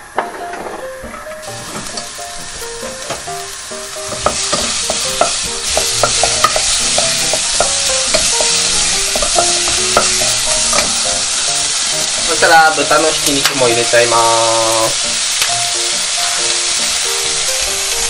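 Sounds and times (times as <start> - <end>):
onion sizzling in oil: 0.1 - 18.0
wooden spatula scraping pan: 1.5 - 3.3.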